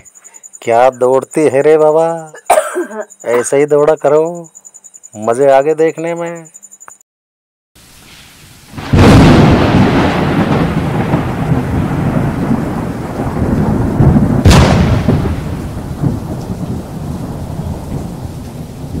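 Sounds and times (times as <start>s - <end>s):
rain: 7.8s - 19.0s
sharp thunderclap: 8.7s - 19.0s
thunder rumbling: 8.7s - 19.0s.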